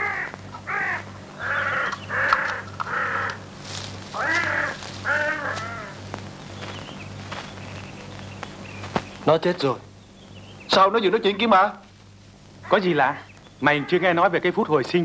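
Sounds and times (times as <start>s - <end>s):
crow cawing: 0.0s - 6.1s, 12.6s - 14.2s
steady low hum: 0.0s - 15.0s.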